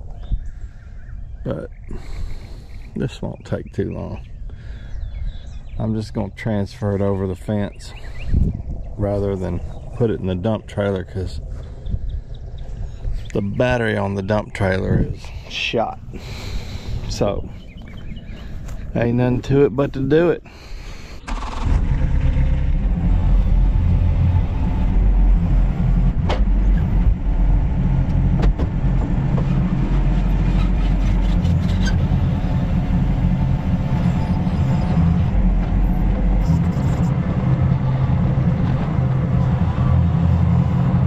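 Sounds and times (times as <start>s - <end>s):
excavator diesel engine running: 20.5s - 41.0s.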